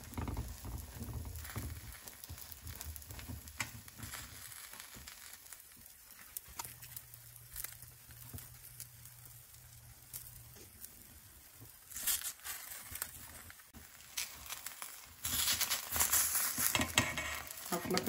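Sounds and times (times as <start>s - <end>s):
spatula scraping a pan: 0.0s - 5.0s, 11.9s - 18.0s
omelette sizzling in a pan: 0.0s - 18.0s.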